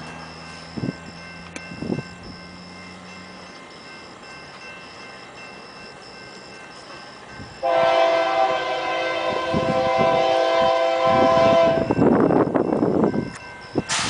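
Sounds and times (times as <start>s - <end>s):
low train rumble: 0.0s - 14.0s
locomotive air horn chord: 7.6s - 11.9s.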